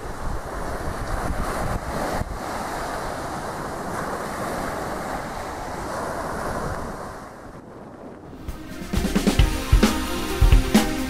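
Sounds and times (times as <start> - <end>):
small waves breaking on sand: 0.0 - 8.5
wind buffeting microphone: 0.0 - 8.6.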